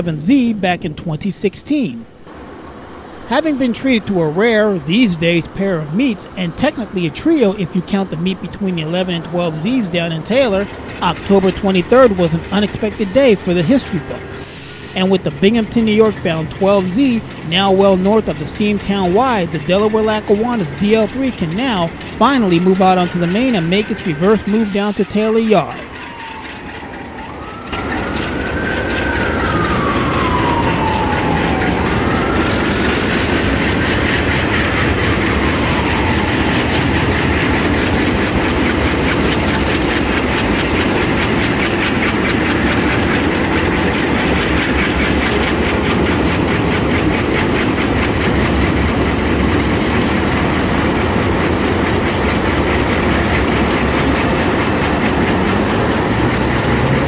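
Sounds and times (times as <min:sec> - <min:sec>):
diesel locomotives pulling freight train: 0:00.0 - 0:57.0
wheels clattering on rails: 0:00.0 - 0:57.0
whine sliding in pitch: 0:02.3 - 0:39.6.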